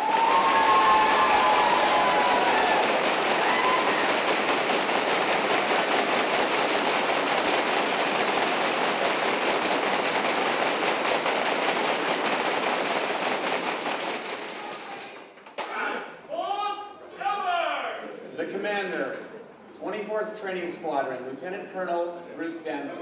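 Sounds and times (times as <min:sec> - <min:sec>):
audience applauding: 0:00.0 - 0:15.1.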